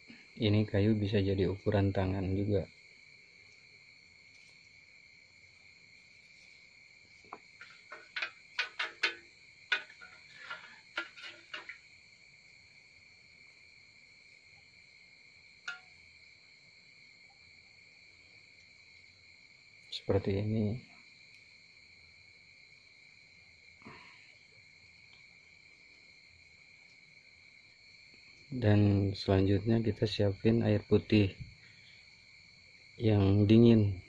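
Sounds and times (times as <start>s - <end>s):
crickets chirring: 0.0s - 34.0s
clicks and knocks against metal pot: 7.3s - 11.8s, 15.6s - 16.0s.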